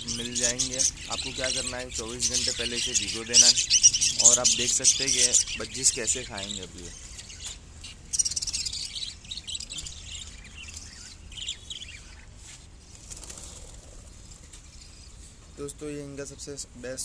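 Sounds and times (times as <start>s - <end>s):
budgerigars chirping and chattering: 0.0s - 17.0s.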